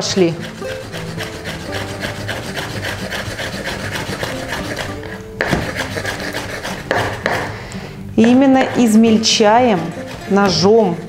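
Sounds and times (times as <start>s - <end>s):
knife chopping on wooden board: 0.5s - 7.6s, 8.2s - 11.0s
low knock: 5.4s - 5.8s.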